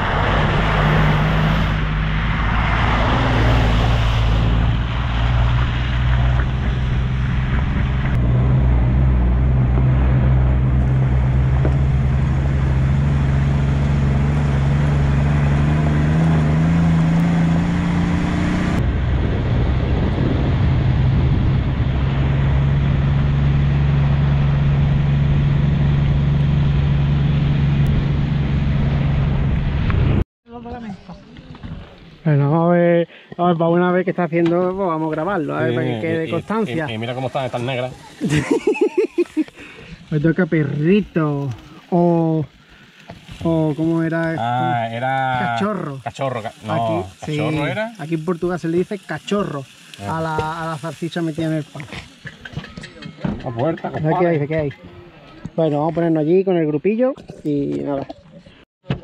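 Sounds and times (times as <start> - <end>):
rushing noise: 0.0 - 30.2
vehicle engine running: 4.3 - 30.2.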